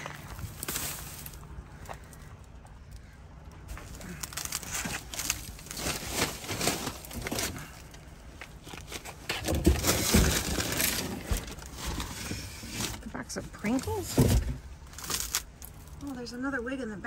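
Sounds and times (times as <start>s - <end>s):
plastic bags rustling: 0.0s - 2.3s, 3.7s - 16.2s.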